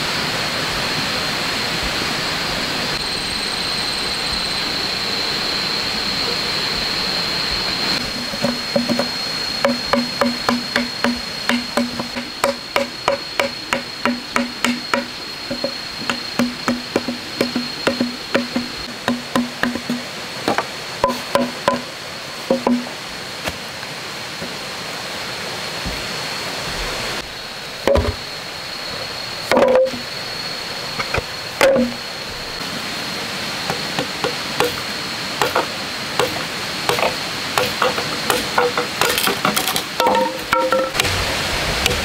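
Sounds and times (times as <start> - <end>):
machete chopping bamboo: 8.4 - 21.9, 35.4 - 41.2.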